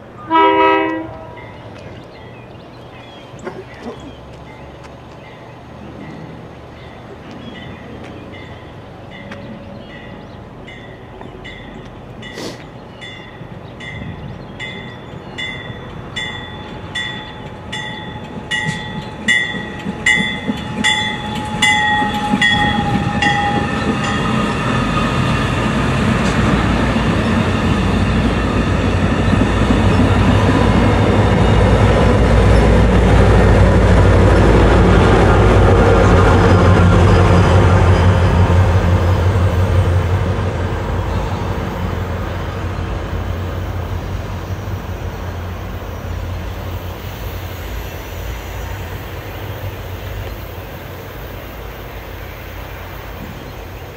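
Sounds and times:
diesel locomotive engines: 0:00.0 - 0:53.9
rail rumble: 0:00.0 - 0:53.9
train bell ringing: 0:01.2 - 0:02.5, 0:04.4 - 0:12.4, 0:13.0 - 0:25.3.

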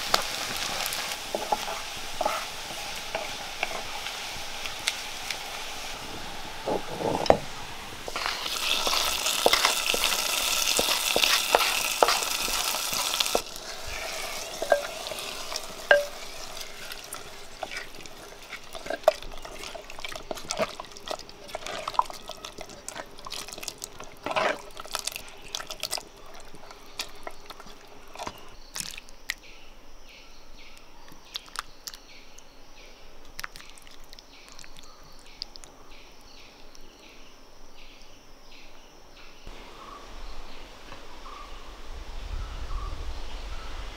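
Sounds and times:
oil sizzling in a pan: 0:00.0 - 0:28.6
spoon scraping curry in clay pot: 0:00.7 - 0:05.5, 0:08.1 - 0:28.6.

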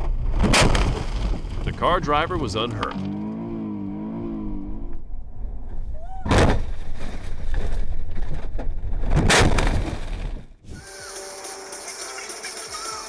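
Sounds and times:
low rumble: 0:00.0 - 0:09.4.

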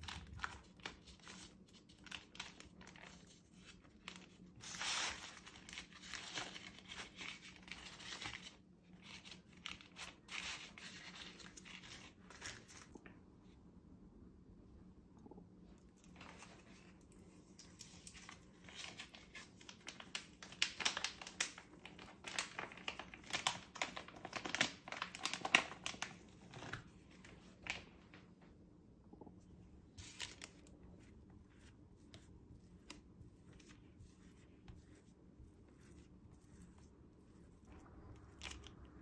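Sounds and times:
plastic pouch crinkling: 0:17.6 - 0:27.9.

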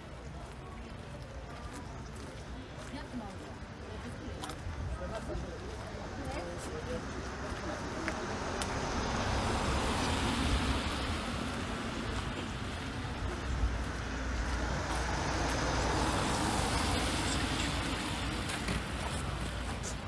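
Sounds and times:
cars passing on wet road: 0:05.8 - 0:20.0.

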